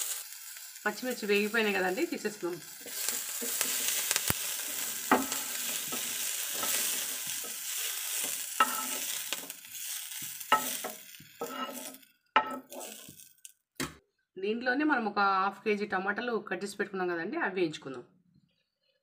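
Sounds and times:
chillies sizzling in hot oil: 0.0s - 13.7s
wooden spatula scraping pan: 2.8s - 13.3s.

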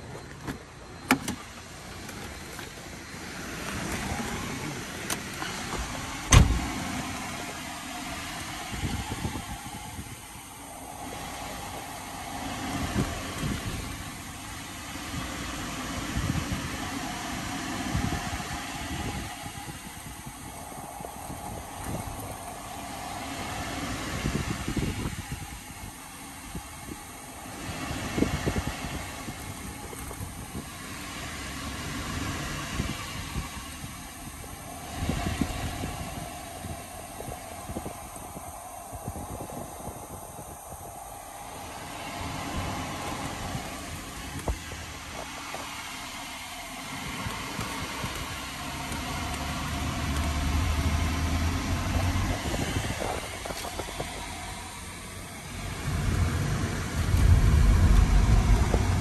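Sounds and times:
car engine: 0.0s - 59.0s
road noise: 0.0s - 59.0s
sharp thump: 6.3s - 6.7s.

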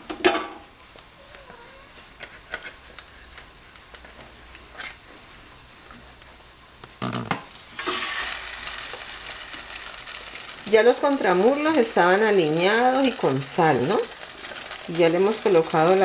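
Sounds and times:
chicken frying in oil: 7.0s - 16.0s.

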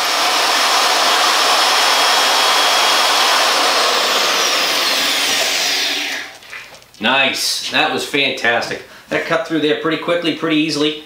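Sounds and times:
magnetic drill cutting steel: 0.0s - 6.3s.

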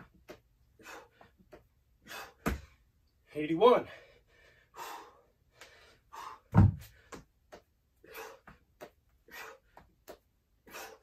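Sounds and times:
man breathing hard: 0.6s - 2.9s, 3.8s - 11.0s
heavy thud on gym floor: 6.5s - 6.9s.

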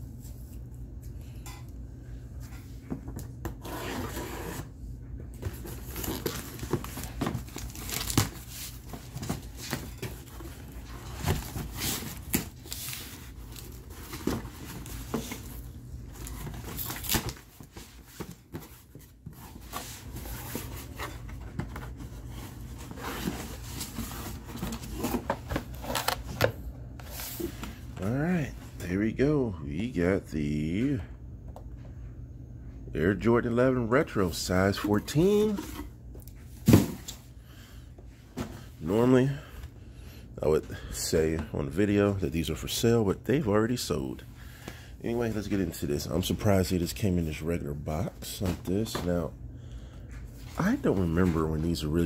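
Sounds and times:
cardboard rustling and scraping: 2.5s - 28.1s, 34.4s - 37.2s
packing tape ripping off cardboard: 5.9s - 8.4s.

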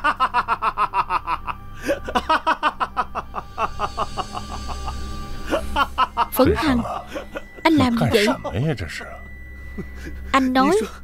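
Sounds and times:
man laughing: 0.0s - 8.6s.

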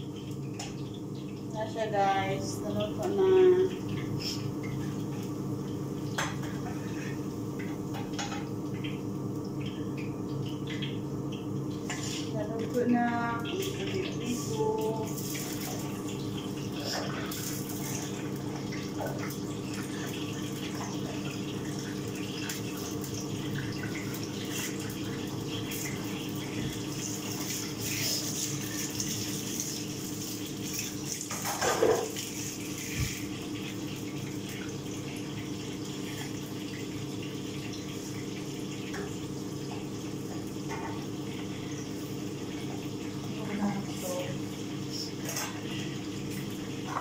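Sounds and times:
rushing kitchen noise: 11.8s - 33.8s.

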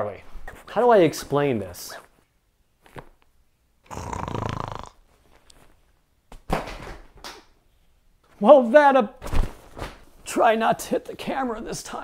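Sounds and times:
breathy noise: 3.8s - 5.5s.

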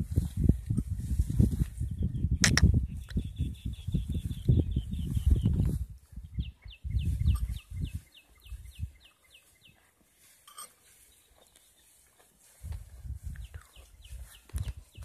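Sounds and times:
bird chirping: 1.9s - 9.9s, 13.3s - 15.0s
cow tearing and chewing grass: 7.2s - 15.0s.

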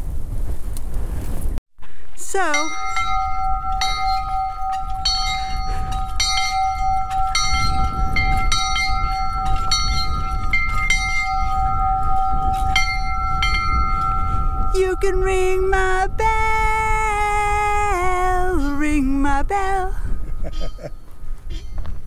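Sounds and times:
metal bell ringing: 2.4s - 15.9s, 19.9s - 22.0s.

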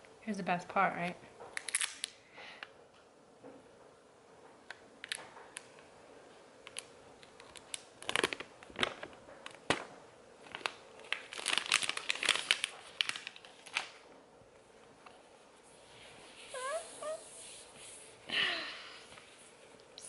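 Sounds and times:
packaging crinkling and tearing: 1.6s - 2.2s, 6.7s - 14.0s.

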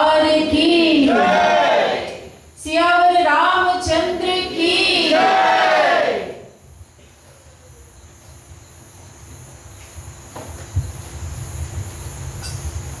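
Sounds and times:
high-pitched insect chirring: 12.0s - 13.0s.

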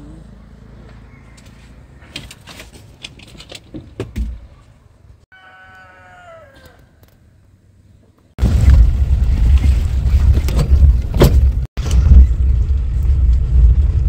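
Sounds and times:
rooster crowing: 1.0s - 2.2s, 5.3s - 7.0s.

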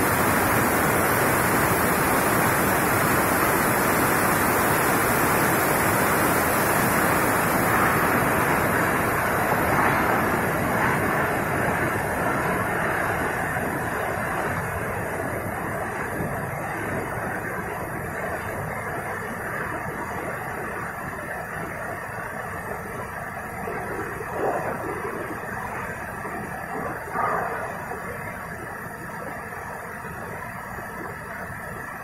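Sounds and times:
water jetting from hose: 0.0s - 20.9s.

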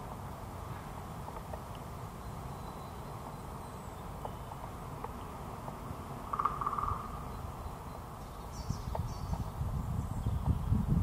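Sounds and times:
woodpecker drumming on wood: 6.3s - 7.2s.

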